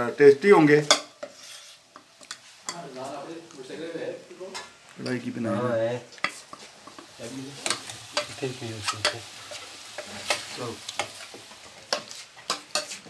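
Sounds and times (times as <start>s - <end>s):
deep-frying sizzle in oil: 0.0s - 13.0s
utensil scraping a pan: 0.8s - 2.8s, 6.3s - 13.0s.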